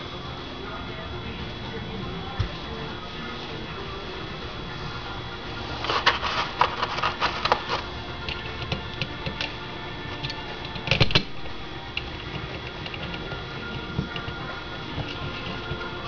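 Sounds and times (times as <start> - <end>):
small metal parts clicking: 10.2 - 15.9.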